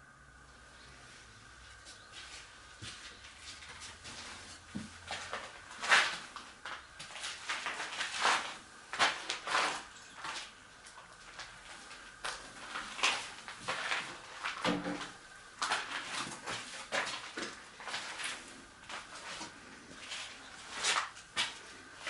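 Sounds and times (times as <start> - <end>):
footsteps on sandy stone floor: 1.8 - 10.6.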